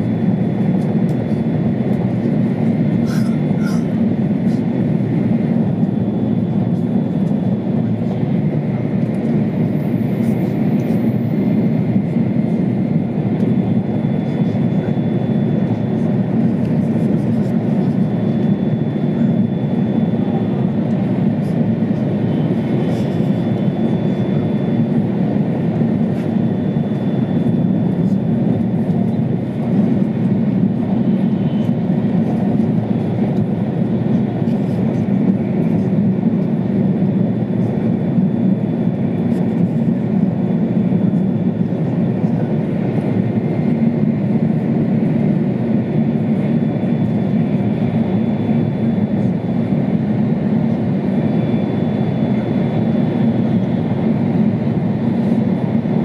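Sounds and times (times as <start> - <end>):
train rumble inside cabin: 0.0 - 14.9, 19.1 - 25.2, 26.9 - 36.6, 40.8 - 43.1.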